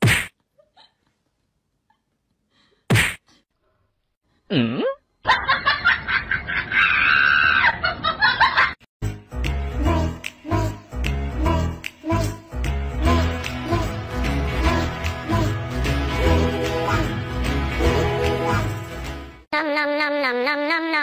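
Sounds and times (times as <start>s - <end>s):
laughter-like noise: 5.2s - 8.8s
music: 9.0s - 19.5s.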